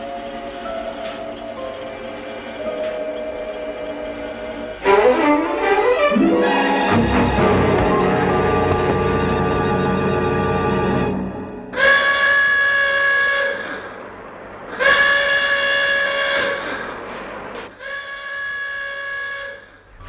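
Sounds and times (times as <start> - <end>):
emergency alarm horn blasts: 11.7 - 14.1, 14.7 - 17.0, 17.7 - 20.0.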